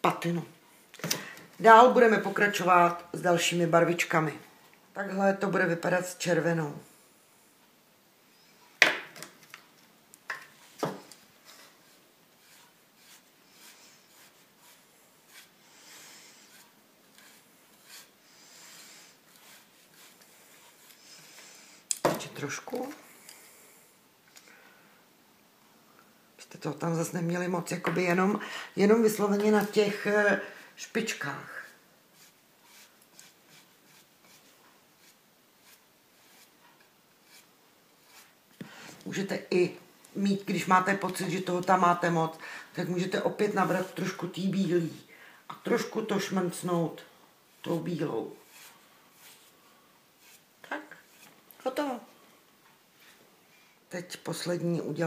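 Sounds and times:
paintbrush scratching on wood: 11.4s - 21.6s, 32.1s - 38.4s, 47.5s - 49.6s, 50.2s - 51.4s.

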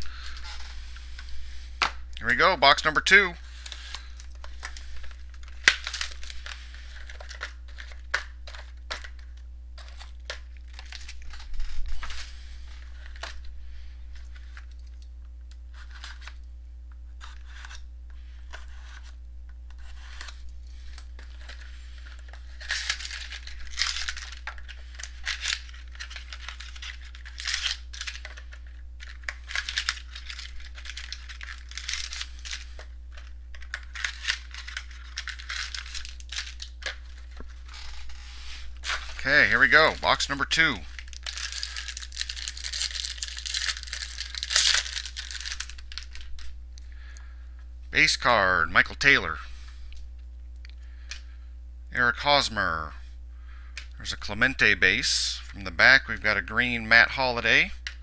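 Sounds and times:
wrapping tearing and crinkling: 0.0s - 16.5s, 17.1s - 17.9s, 18.5s - 46.6s
steady low hum: 0.0s - 58.0s.

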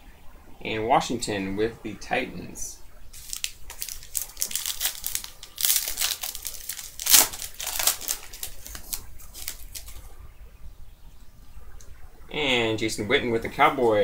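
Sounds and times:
foil wrapper crinkling and tearing: 3.1s - 10.0s
soft rustling: 3.1s - 10.2s.

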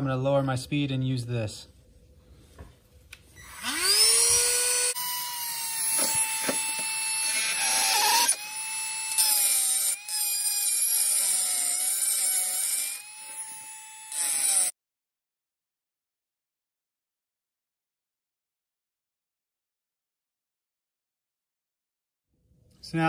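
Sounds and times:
die grinder grinding metal: 3.5s - 14.8s.

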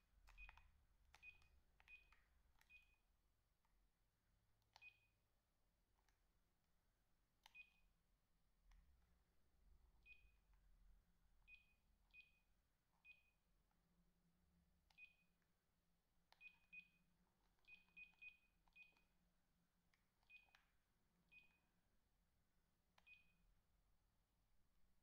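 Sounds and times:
phone keypad beeps: 0.3s - 3.0s, 4.8s - 5.1s, 7.4s - 7.8s, 13.0s - 13.3s, 14.9s - 15.3s, 16.3s - 17.0s, 17.6s - 19.1s, 20.2s - 20.6s, 21.3s - 21.7s, 23.0s - 23.4s.

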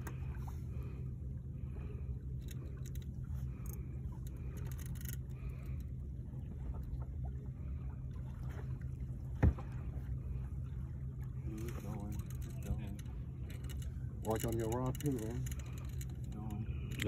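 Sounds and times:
low motor hum: 0.0s - 17.0s
faint ticks: 2.4s - 6.0s, 11.6s - 17.0s.

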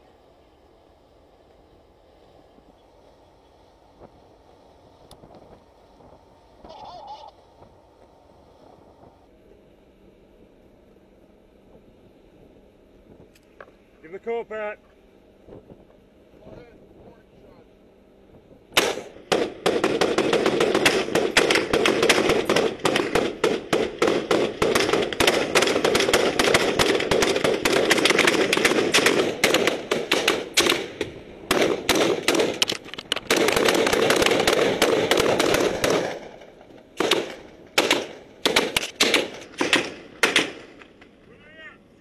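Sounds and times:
rifle shots: 18.7s - 41.0s.

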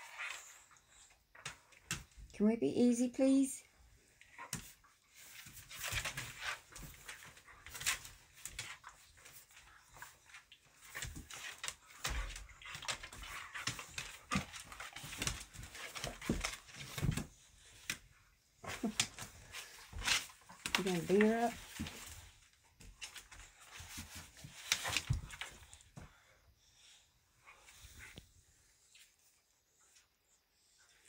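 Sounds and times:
dogs scuffling: 4.1s - 26.3s
claws clicking on wooden floor: 4.3s - 18.1s.

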